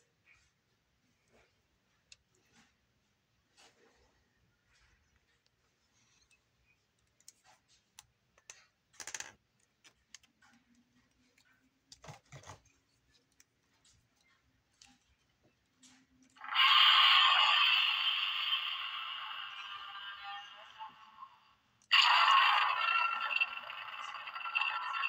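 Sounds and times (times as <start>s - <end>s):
tinny electronic toy roar: 16.4s - 25.0s.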